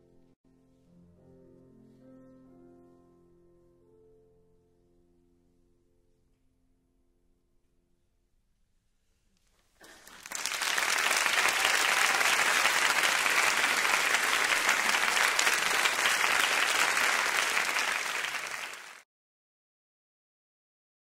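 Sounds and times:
audience applauding: 9.8s - 19.0s.

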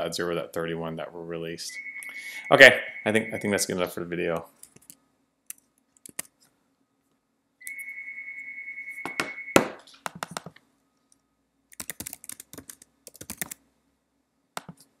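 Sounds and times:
high electronic tone: 1.7s - 3.9s, 7.6s - 9.8s
keyboard keys clicking: 11.8s - 13.6s.

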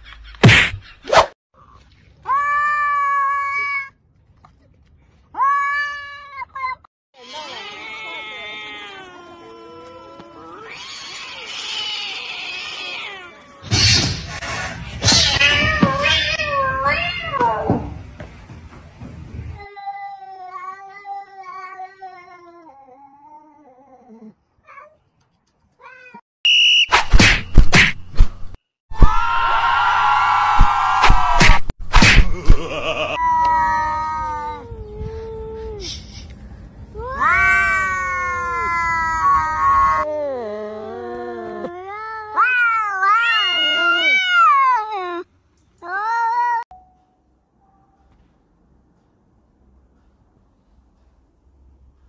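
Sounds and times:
cats yowling and meowing: 7.2s - 13.7s, 15.1s - 17.6s, 37.0s - 46.7s
cat yowling: 41.9s - 45.3s.

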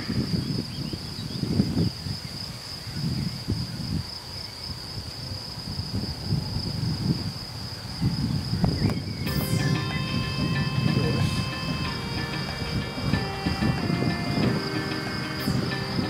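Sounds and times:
wind rumble on microphone: 0.0s - 9.3s
crickets chirring: 0.0s - 16.0s
sustained multi-pitch tone: 9.3s - 16.0s.

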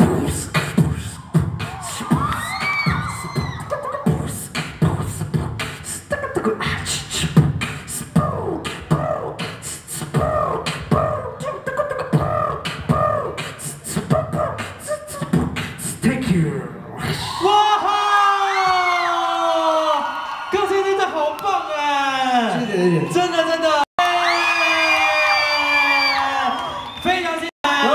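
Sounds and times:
beatboxing: 0.0s - 17.4s
bending vocal tones: 0.0s - 17.6s.

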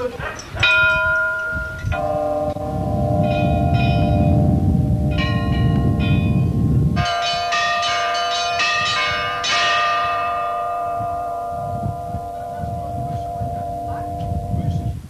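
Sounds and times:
church bells ringing: 0.5s - 15.0s
low rumble: 1.9s - 7.8s.

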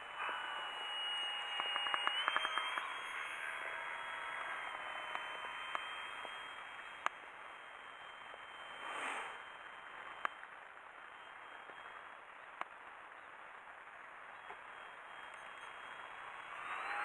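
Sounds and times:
model plane motor whirring: 0.0s - 10.5s, 14.6s - 17.0s
sharp clicks: 0.9s - 7.2s, 10.0s - 16.9s.

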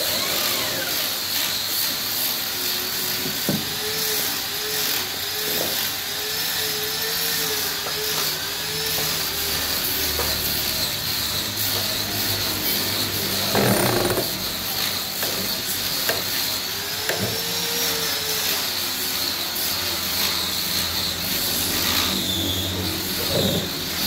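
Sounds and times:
hissing machine noise: 0.0s - 24.0s.

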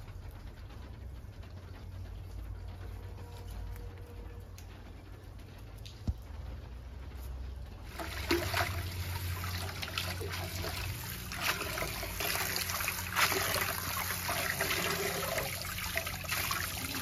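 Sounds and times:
tap water running into pot: 7.9s - 17.0s.

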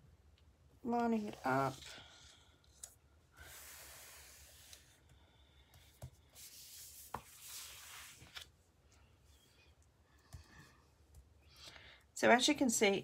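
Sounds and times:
paper rubbing and rustling: 6.4s - 8.5s.

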